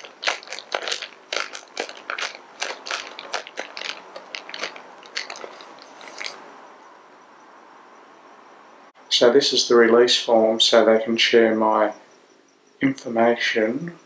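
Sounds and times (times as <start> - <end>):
plastic zip bag crackling clicks: 0.0 - 6.4.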